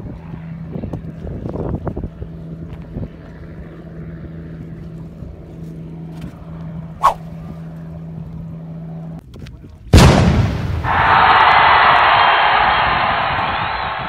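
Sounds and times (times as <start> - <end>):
engine humming low: 0.0 - 9.2.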